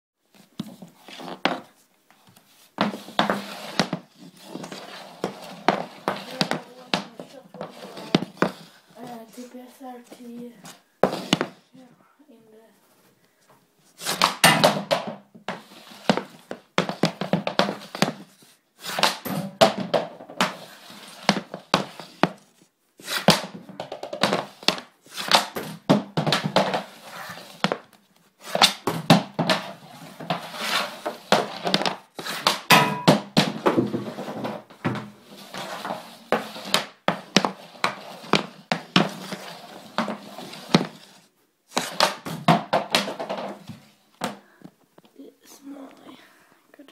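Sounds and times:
hockey stick tapping on hardwood floor: 2.3 - 9.2, 11.0 - 11.6, 14.0 - 22.5, 23.1 - 44.8.

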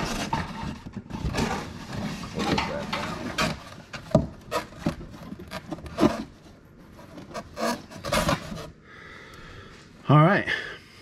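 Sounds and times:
cardboard flap scraping box: 0.0 - 3.8, 4.4 - 8.7.

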